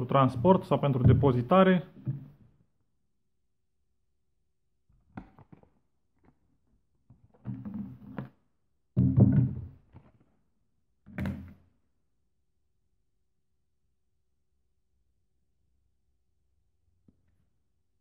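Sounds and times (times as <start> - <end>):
hollow plastic knocks and clatters: 2.0 - 2.6, 4.9 - 6.4, 7.0 - 10.3.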